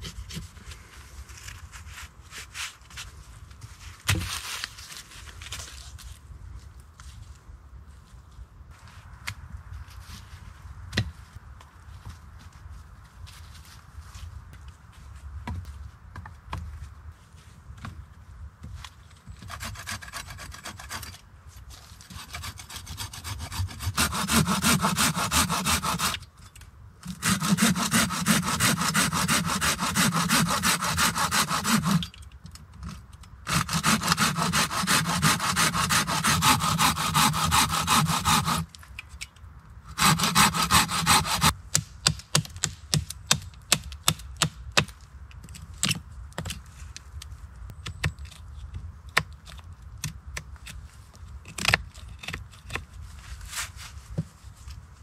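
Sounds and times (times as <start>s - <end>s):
hand saw cutting stick: 19.4s - 21.2s, 22.1s - 26.2s, 27.0s - 32.2s, 33.5s - 38.7s, 39.9s - 41.6s.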